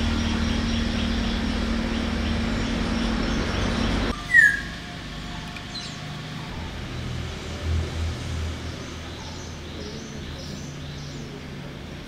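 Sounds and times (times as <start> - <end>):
low hum and rumble: 0.0 - 12.0.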